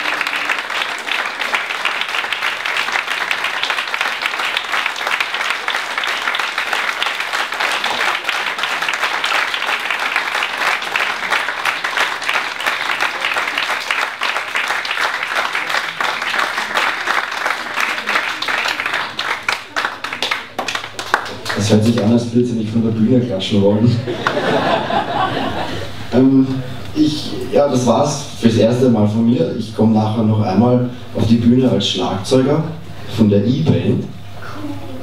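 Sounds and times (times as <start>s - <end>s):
audience applauding: 0.0s - 22.8s, 24.1s - 26.1s.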